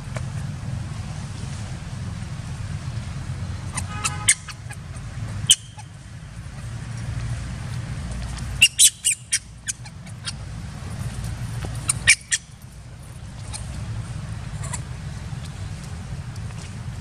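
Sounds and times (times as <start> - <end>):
high-pitched animal chirps: 3.7 - 4.8, 5.5 - 5.9, 8.6 - 10.4, 11.9 - 12.5
steady low rumble: 9.4 - 17.0.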